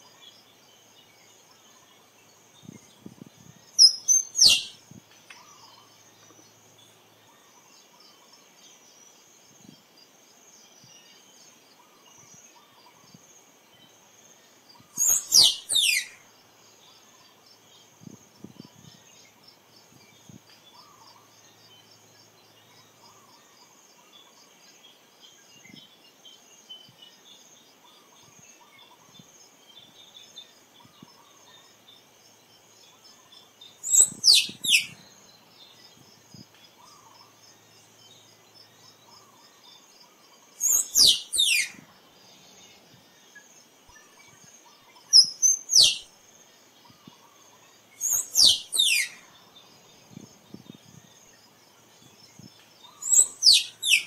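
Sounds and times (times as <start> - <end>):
faint insect buzz: 0.0 - 54.0
squirrel calling: 3.8 - 4.8, 14.9 - 16.2, 33.8 - 35.0, 40.6 - 41.8, 44.9 - 46.1, 48.0 - 49.2, 52.9 - 54.0.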